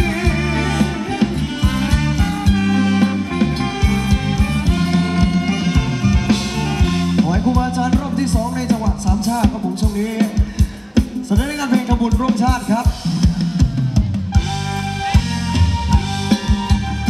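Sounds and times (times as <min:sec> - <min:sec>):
held electric instrument tones: 0:00.0 - 0:08.2, 0:14.3 - 0:17.0
quick drum beat: 0:00.0 - 0:17.0.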